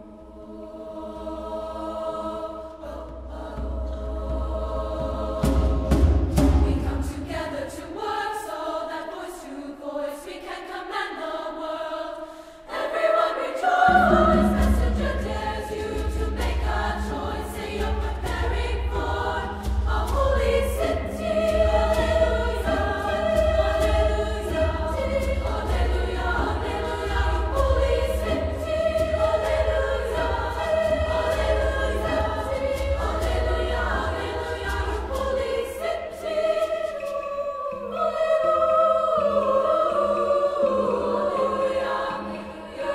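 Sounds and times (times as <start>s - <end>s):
women's choir singing: 0.0s - 42.9s
low drum: 3.1s - 7.2s, 13.9s - 35.3s.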